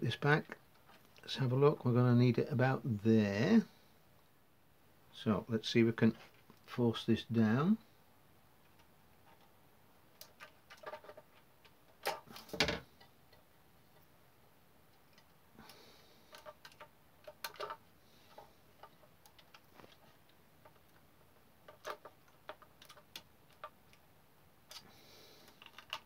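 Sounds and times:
faint clicks and taps: 14.9 - 24.1.

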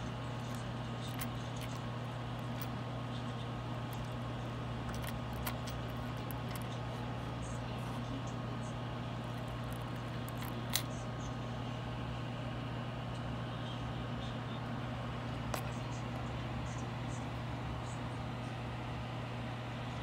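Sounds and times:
steady low hum: 0.0 - 20.0
metal charms clicking: 0.4 - 2.7, 4.8 - 6.7, 9.4 - 10.9.

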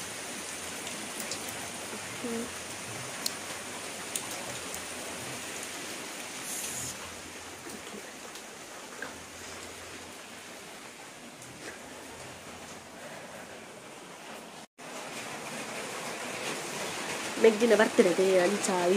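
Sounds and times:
steady rain: 0.0 - 18.9
light drips: 0.7 - 10.4.

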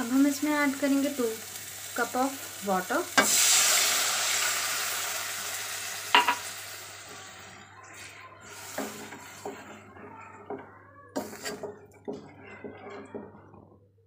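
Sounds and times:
oil sizzling in pan: 0.0 - 9.9
wooden spoon knocking against pan: 6.1 - 6.4, 8.8 - 13.7.

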